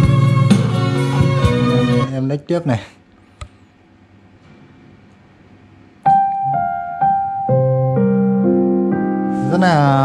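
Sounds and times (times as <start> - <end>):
piano music over loudspeakers: 6.0 - 10.0.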